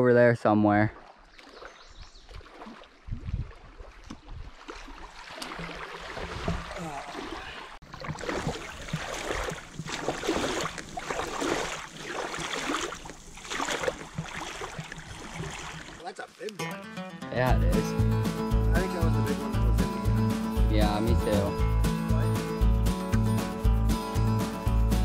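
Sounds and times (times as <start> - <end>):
water splashing against canoe: 0.9 - 16.2
wind rumbling on microphone: 3.0 - 4.6.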